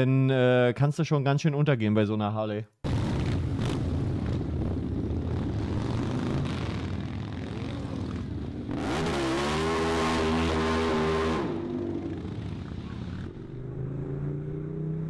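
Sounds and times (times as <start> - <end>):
motorcycle engine revving: 5.0 - 15.0.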